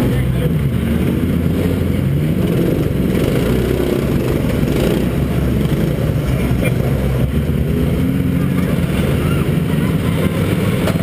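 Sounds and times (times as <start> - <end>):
racing car engine running: 0.0 - 11.0.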